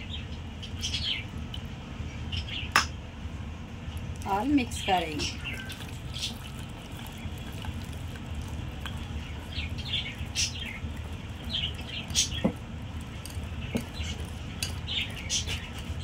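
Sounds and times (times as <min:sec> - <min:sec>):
steady low hum: 0:00.0 - 0:16.0
whisk beating batter in glass bowl: 0:05.5 - 0:16.0.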